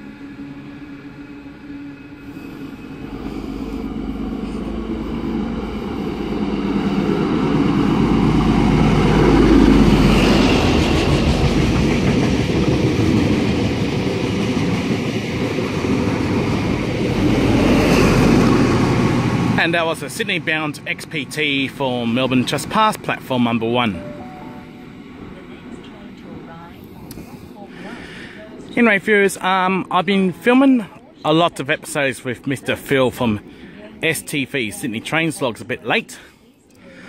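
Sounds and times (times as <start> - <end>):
diesel train engine: 0.0 - 29.7
train wheels on rails: 2.2 - 23.4.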